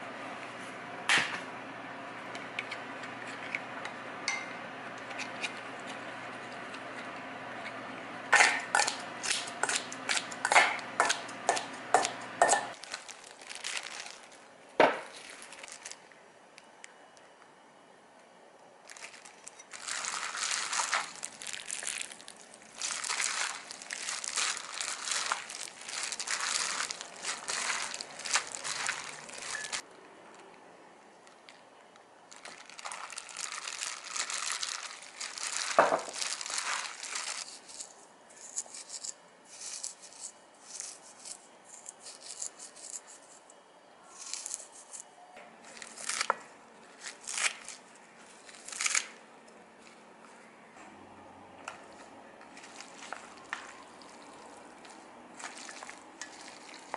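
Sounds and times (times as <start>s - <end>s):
noodles mixed by hand in bowl: 18.9s - 29.9s, 32.3s - 43.4s, 44.1s - 45.0s, 51.8s - 56.9s
light clicks and squishes: 51.6s - 56.9s.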